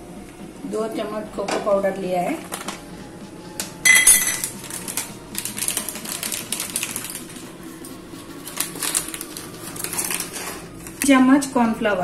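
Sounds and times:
spoon tapping steel bowls: 3.9s - 4.5s.

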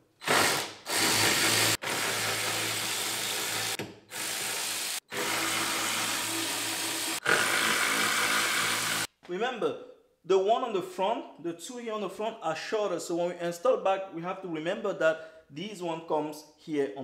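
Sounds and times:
handheld power tool running: 0.2s - 9.1s.

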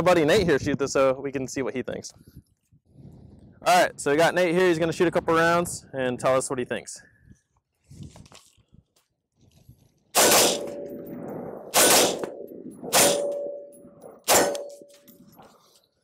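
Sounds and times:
rifle shots: 10.2s - 14.9s
metallic ring of steel target: 10.2s - 15.2s.

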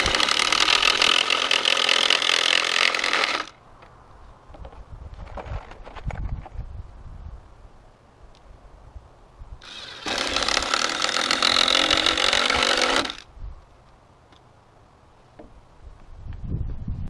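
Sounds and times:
cordless drill driving into wood: 0.0s - 3.6s, 9.6s - 13.2s.

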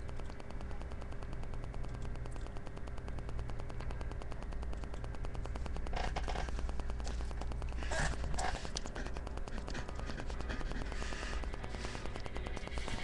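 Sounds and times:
fast even ticking: 0.0s - 13.0s
low electrical hum: 0.0s - 13.0s
static hiss: 0.0s - 13.0s
scratchy noise: 4.9s - 13.0s.

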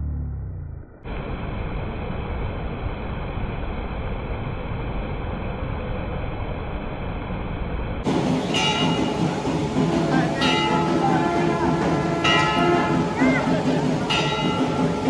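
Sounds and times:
river water pouring over weir: 8.1s - 15.0s.

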